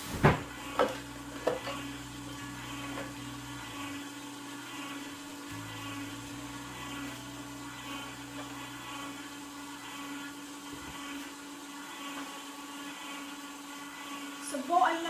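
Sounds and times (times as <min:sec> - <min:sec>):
deeper hum: 0:00.0 - 0:13.3
juicer motor humming: 0:00.0 - 0:15.0.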